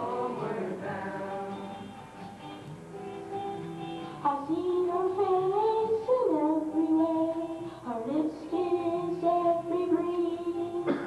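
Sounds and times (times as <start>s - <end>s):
boys singing in harmony: 0.0s - 2.0s.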